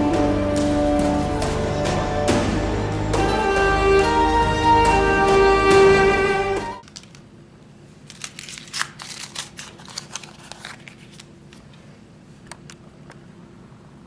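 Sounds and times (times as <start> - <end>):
paper crinkling: 6.8 - 7.2, 8.0 - 12.0.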